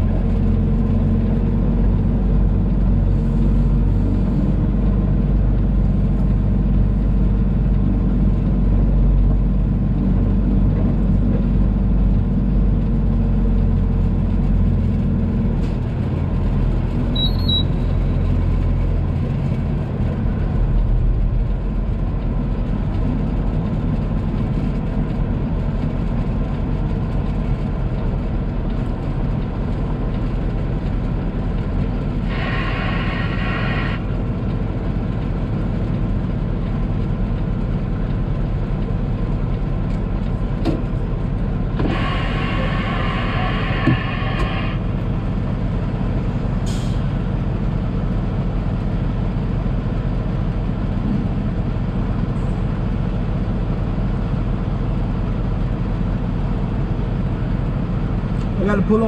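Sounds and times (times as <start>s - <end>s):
diesel engine running: 0.0s - 59.0s
air brakes hissing: 32.2s - 34.1s, 41.8s - 45.0s, 46.6s - 47.2s.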